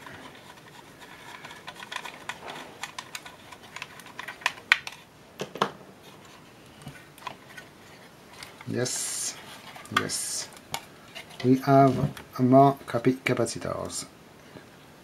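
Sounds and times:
light clicks and scrapes: 0:06.0 - 0:12.2.

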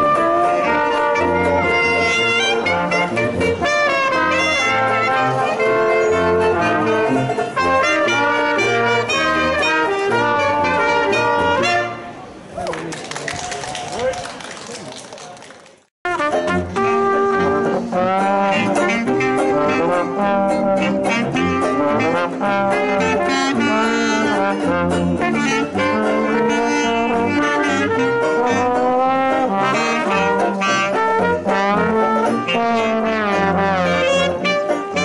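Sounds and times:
trombone: 0:00.0 - 0:12.2, 0:16.1 - 0:35.0
clarinet: 0:00.0 - 0:12.3, 0:16.1 - 0:35.0
trumpet: 0:00.0 - 0:12.3, 0:16.0 - 0:35.0.

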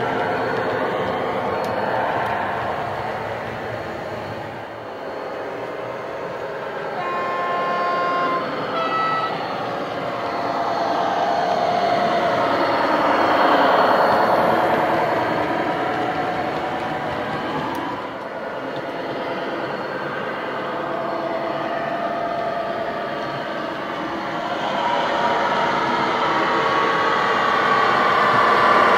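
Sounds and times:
model diesel engine with turbo whistle: 0:00.0 - 0:18.4, 0:19.4 - 0:28.9
model train running: 0:00.0 - 0:28.9
two-tone horn: 0:06.9 - 0:09.8.

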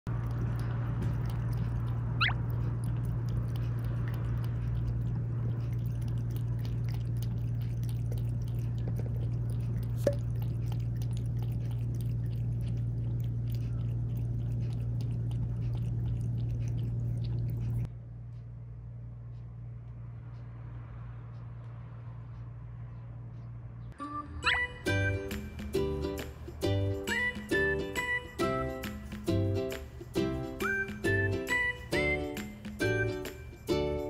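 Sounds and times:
cat lapping water: 0:00.1 - 0:17.9
low hum: 0:00.1 - 0:34.0.

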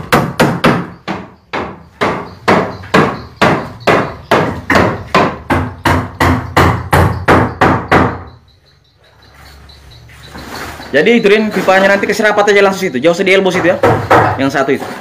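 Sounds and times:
hammer striking wood: 0:00.0 - 0:08.4, 0:13.5 - 0:14.5.

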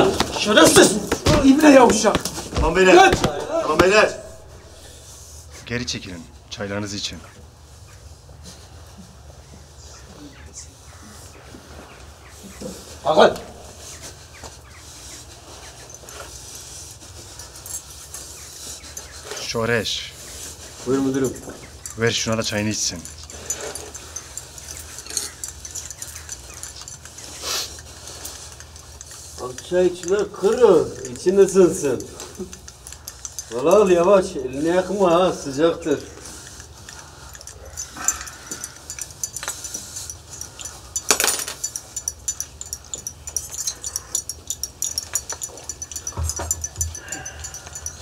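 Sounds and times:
glasses and spoons clinking: 0:15.5 - 0:48.0.

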